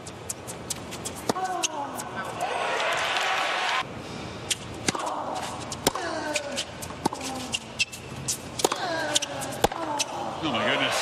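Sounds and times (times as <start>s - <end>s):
tennis ball bouncing: 0.0s - 2.4s, 4.5s - 10.2s
racquet striking tennis ball: 8.6s - 10.0s.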